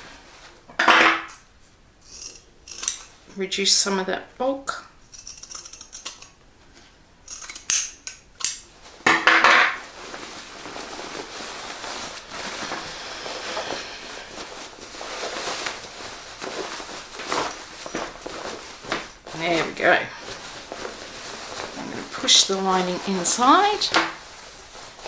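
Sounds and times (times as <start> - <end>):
fabric rustling: 8.6 - 25.0.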